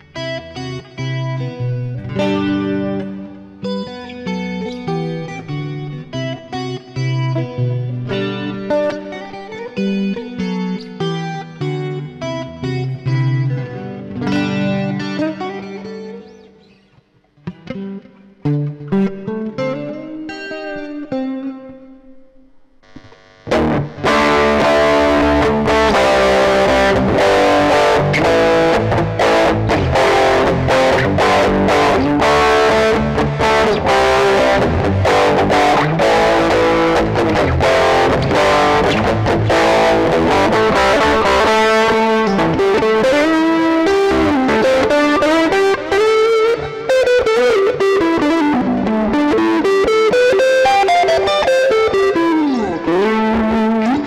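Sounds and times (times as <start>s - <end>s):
distorted electric guitar: 0.0s - 54.0s.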